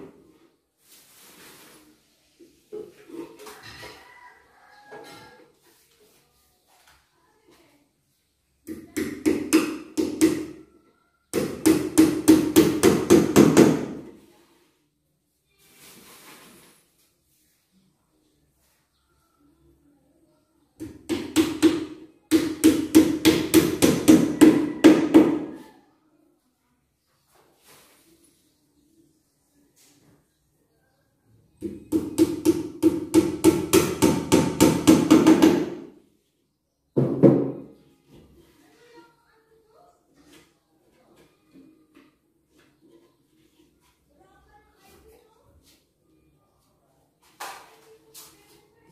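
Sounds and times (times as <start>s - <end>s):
hammer striking wood: 11.4s - 14.1s, 20.8s - 25.5s, 31.6s - 35.9s.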